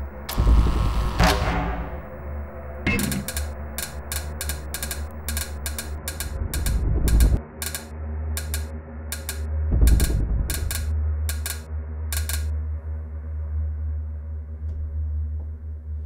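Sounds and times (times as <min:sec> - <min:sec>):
low droning bass: 0:00.0 - 0:07.4, 0:09.4 - 0:11.4
clock-like ticking: 0:01.2 - 0:12.5.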